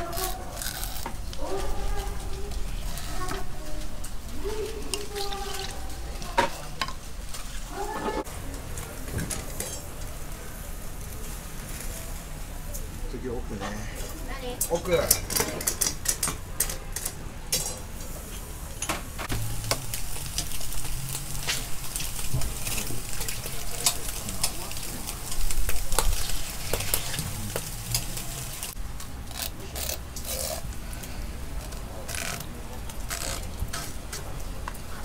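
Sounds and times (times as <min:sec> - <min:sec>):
kitchen tools clicking and tapping: 0:00.0 - 0:10.3, 0:14.6 - 0:35.0
eel sizzling: 0:19.3 - 0:30.7, 0:31.6 - 0:33.9.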